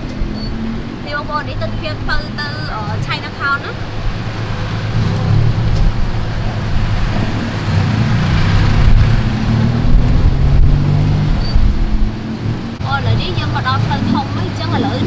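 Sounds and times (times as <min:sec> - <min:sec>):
traffic noise: 0:00.0 - 0:15.0
tuk-tuk engine running: 0:00.0 - 0:15.0.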